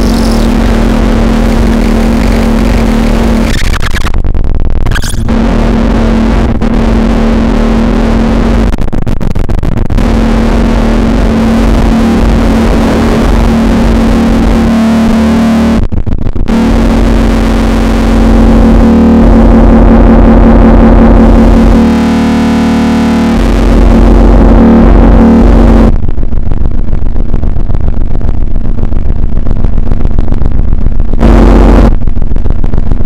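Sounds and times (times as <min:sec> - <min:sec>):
steady low tone: 0:00.0 - 0:03.5, 0:04.2 - 0:33.0
noisy synthesizer drone: 0:00.0 - 0:33.0.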